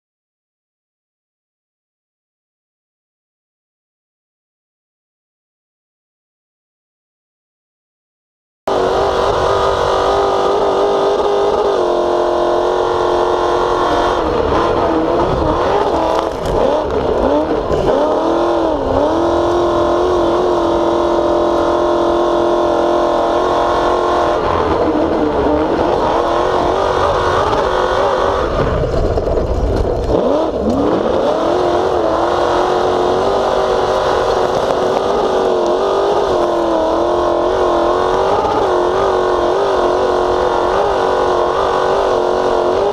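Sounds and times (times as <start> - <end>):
race truck engine revving: 8.7 - 42.9.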